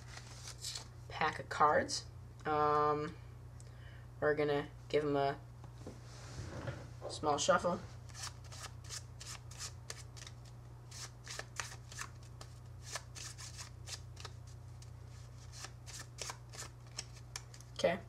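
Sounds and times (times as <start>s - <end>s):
playing cards being shuffled: 0.0s - 0.9s, 8.1s - 17.7s.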